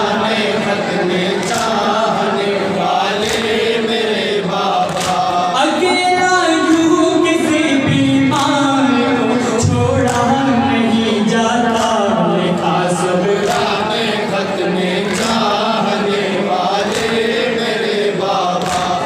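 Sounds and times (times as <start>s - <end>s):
men chanting a lament in unison: 0.0s - 19.0s.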